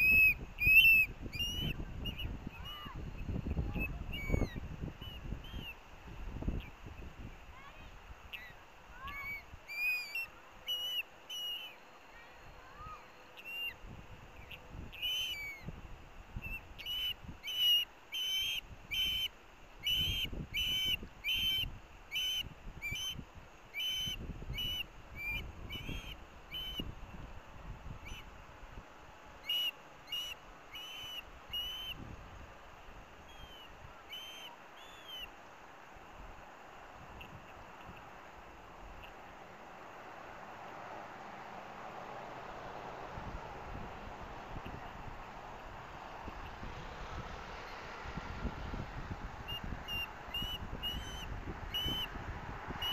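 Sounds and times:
ospreys chirping whistles: 0.0 - 5.8, 8.3 - 13.8, 14.4 - 15.7, 16.4 - 26.9, 29.4 - 32.0, 33.3 - 35.3, 49.5 - 52.2.

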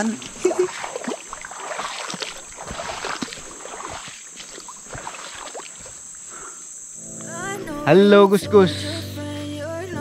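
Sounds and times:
footsteps splashing through water: 0.0 - 6.3
high insect drone: 0.0 - 10.0.

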